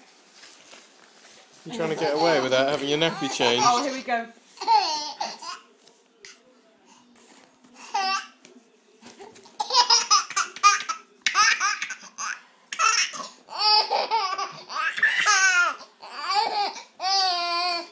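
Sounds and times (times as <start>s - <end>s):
baby laughing: 4.6s - 5.7s, 9.6s - 17.8s.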